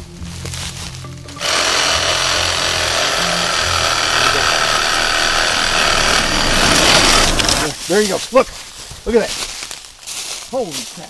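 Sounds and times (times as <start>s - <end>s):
reciprocating saw cutting antler: 1.4s - 7.8s.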